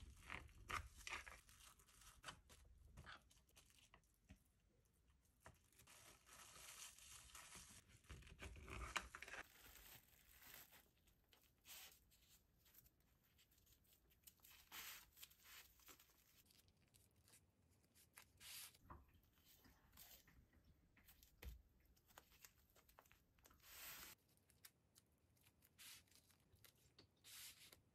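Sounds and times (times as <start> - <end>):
plastic cling film crinkling: 5.4 - 17.4.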